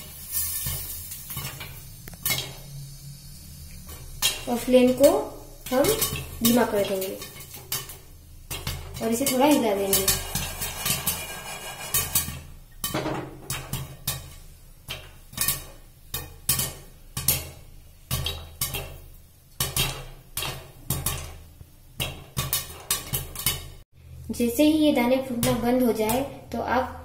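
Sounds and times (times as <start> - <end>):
popcorn kernels popping: 5.6 - 19.0.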